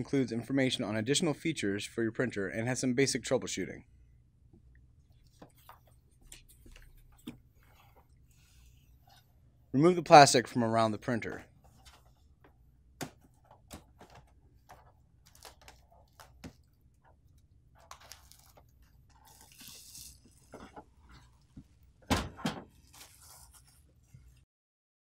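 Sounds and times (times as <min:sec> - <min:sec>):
plastic wrap crinkling: 0:17.8 - 0:20.7.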